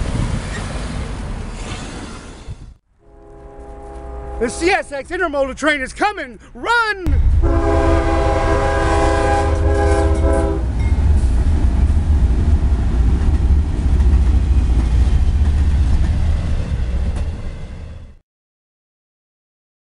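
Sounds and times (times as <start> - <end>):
train rumbling past: 0.0 - 5.5, 7.1 - 18.2
locomotive air horn: 3.0 - 4.9, 7.4 - 10.7.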